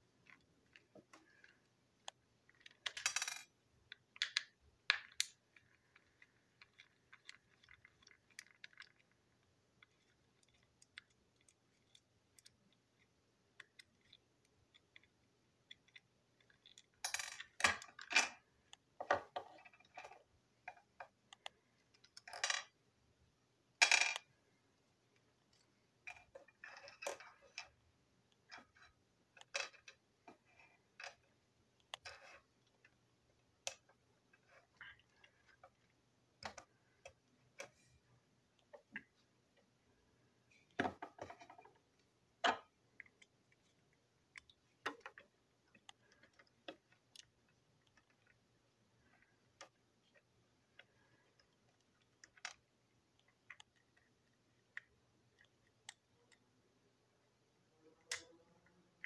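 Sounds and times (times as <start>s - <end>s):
small parts clinking on table: 2.6s - 3.6s, 16.4s - 18.4s, 22.0s - 22.7s, 23.8s - 24.3s.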